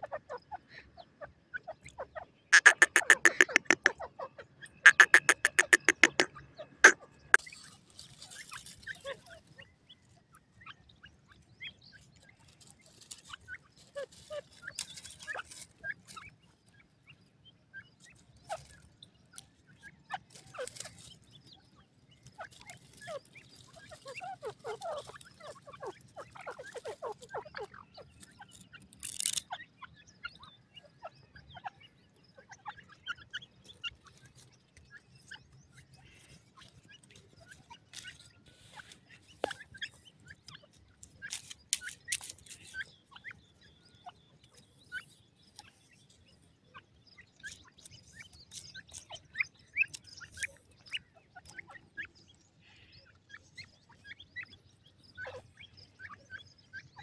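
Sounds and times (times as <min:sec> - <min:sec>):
bird clucking and chirping: 0:00.0 - 0:57.0
sharp clicks: 0:02.6 - 0:03.9, 0:04.9 - 0:07.0.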